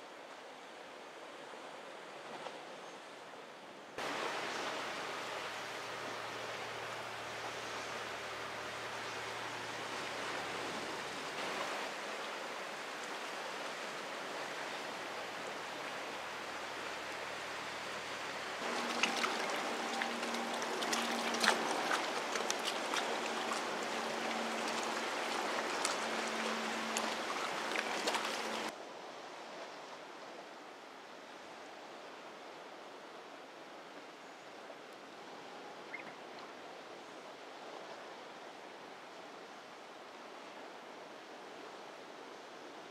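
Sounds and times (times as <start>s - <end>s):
sea surf on rocky shore: 4.0s - 28.8s.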